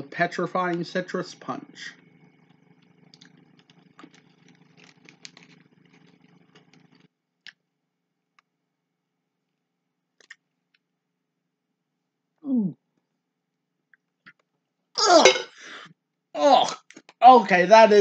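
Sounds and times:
low hum: 0:00.0 - 0:07.1
chewing hard candy: 0:02.5 - 0:07.1.

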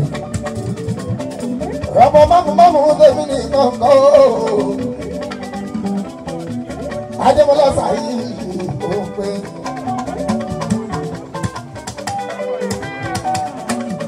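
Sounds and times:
live band playing: 0:00.0 - 0:14.0
man singing into microphone: 0:01.8 - 0:05.3, 0:07.2 - 0:10.2.

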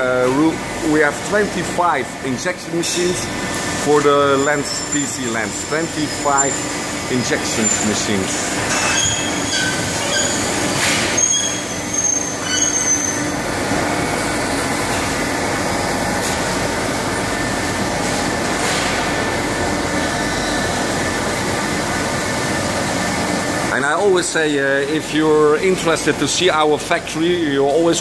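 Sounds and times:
machine hum with fixed tones: 0:00.0 - 0:26.8
short high squeals: 0:08.8 - 0:13.4.

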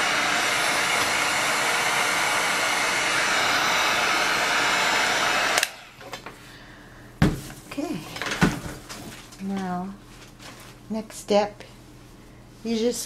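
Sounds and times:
heat gun blowing air: 0:00.0 - 0:06.1
heat gun switch click: 0:05.5 - 0:05.8.

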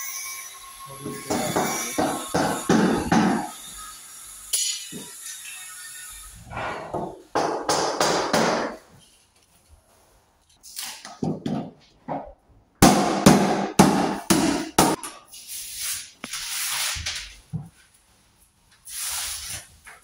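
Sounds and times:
hammer strokes: 0:01.0 - 0:03.8, 0:06.4 - 0:08.8.

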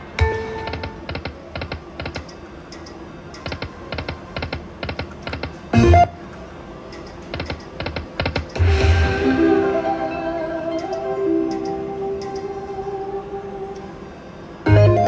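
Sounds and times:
slot machine electronic music: 0:05.8 - 0:06.2, 0:08.5 - 0:14.0, 0:14.7 - 0:15.0
slot machine buttons clicking: 0:07.0 - 0:08.6, 0:10.7 - 0:12.6
short loud burst of sound: 0:08.6 - 0:10.4.

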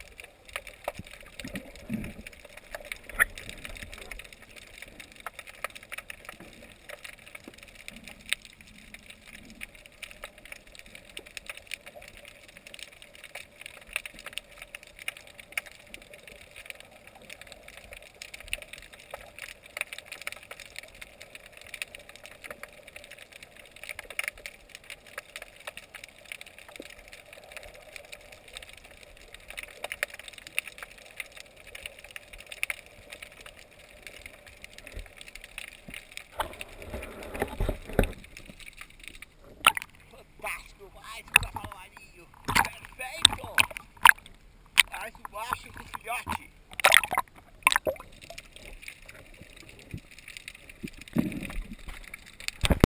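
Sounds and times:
underwater clicks and snaps: 0:00.0 - 0:52.9
water rushing: 0:36.3 - 0:52.9.

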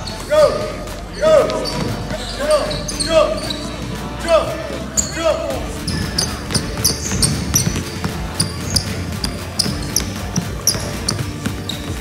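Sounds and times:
basketball dribbling on hardwood floor: 0:05.8 - 0:12.0.

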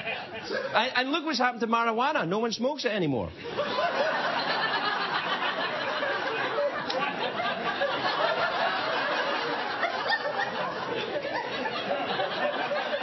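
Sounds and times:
audience laughing: 0:00.0 - 0:00.8, 0:03.4 - 0:13.0.

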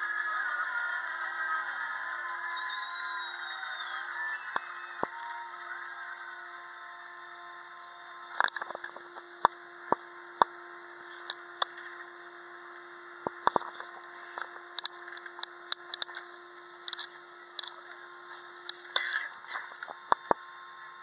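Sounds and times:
sharp clicks and knocks: 0:13.2 - 0:16.2.

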